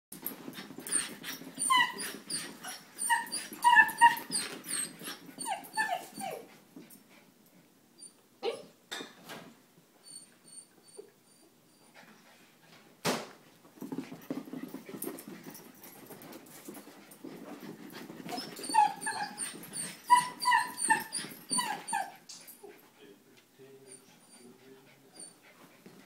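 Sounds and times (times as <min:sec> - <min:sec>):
puppy yipping: 0:00.9 - 0:06.4, 0:18.3 - 0:22.2.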